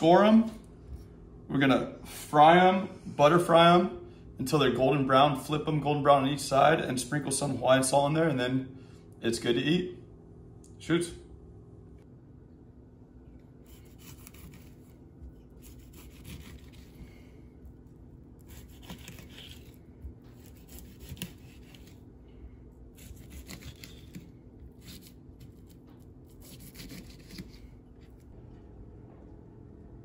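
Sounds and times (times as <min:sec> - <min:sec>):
faint low hum: 0:00.0 - 0:30.0
knife scraping fish skin: 0:13.6 - 0:17.2, 0:18.4 - 0:22.0, 0:22.9 - 0:28.2.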